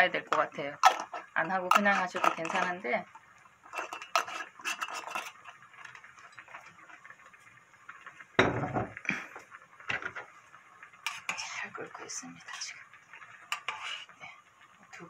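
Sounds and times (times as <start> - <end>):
stew bubbling in pot: 0.0 - 15.0
kitchenware clinking: 0.3 - 2.9, 3.7 - 6.8, 8.4 - 9.0, 13.5 - 14.0.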